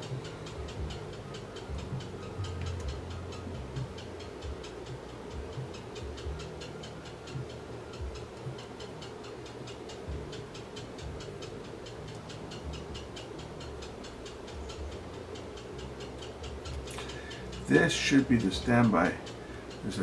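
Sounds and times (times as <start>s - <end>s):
rapid even ticking: 0.0s - 20.0s
steady low hum: 0.0s - 20.0s.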